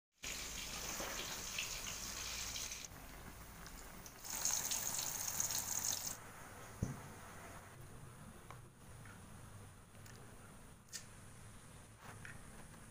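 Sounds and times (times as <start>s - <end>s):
oil sizzling in a wok: 0.2s - 2.9s, 4.0s - 6.2s
water boiling in a pot: 0.2s - 6.2s.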